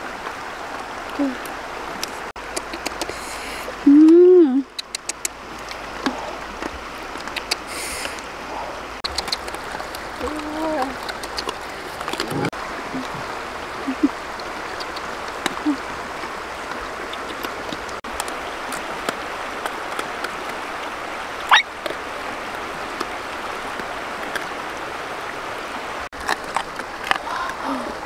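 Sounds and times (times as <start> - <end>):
river running over rocks: 0.0 - 3.9, 4.8 - 28.0.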